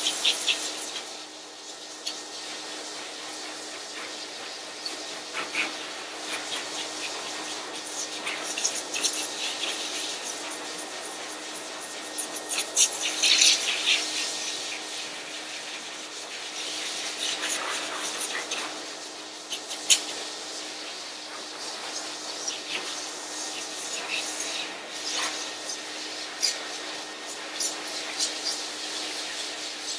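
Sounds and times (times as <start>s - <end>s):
pet dryer blowing air: 0.0s - 29.9s.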